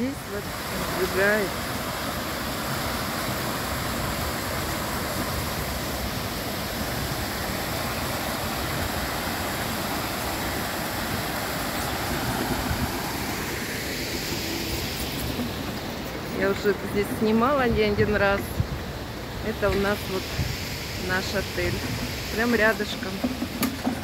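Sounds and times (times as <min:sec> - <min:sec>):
water cascading into pool: 0:00.0 - 0:15.0.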